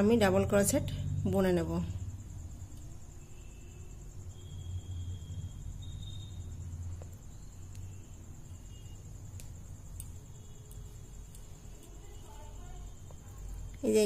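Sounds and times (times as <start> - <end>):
high-pitched insect trill: 0.0 - 14.0
faint ticks: 9.3 - 12.3.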